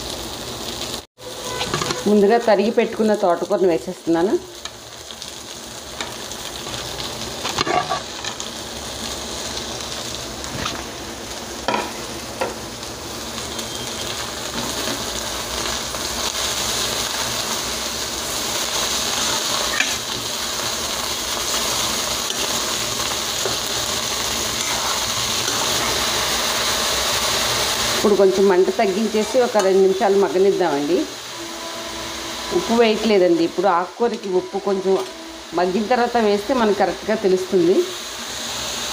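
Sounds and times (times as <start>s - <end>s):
leaves sizzling in hot oil: 0.0s - 38.9s
spoon knocking and scraping pan: 1.5s - 2.1s, 7.4s - 8.4s, 11.7s - 12.6s, 19.3s - 20.2s.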